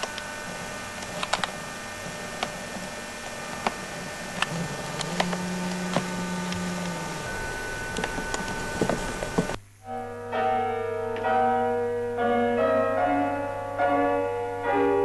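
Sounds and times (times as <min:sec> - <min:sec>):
low steady tone: 0:00.0 - 0:14.7
steady hum: 0:00.0 - 0:15.0.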